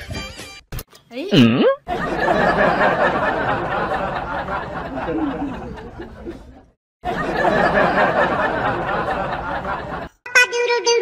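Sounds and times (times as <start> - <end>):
people laughing: 1.9 - 10.2.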